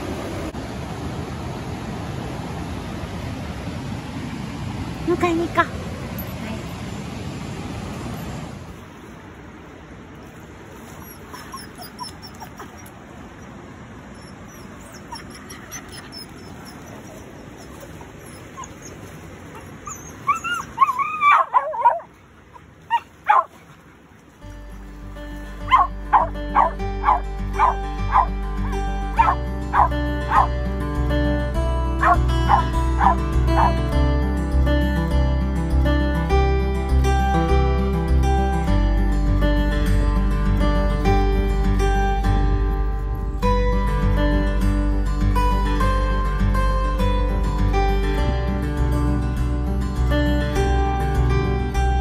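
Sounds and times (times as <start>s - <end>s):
dog whining: 11.0s - 13.0s, 14.1s - 22.1s, 25.7s - 30.5s
dog barking: 20.4s - 22.1s, 22.9s - 23.5s, 25.7s - 28.3s, 29.2s - 30.5s, 32.0s - 33.8s
plucked ukulele music: 24.4s - 52.0s.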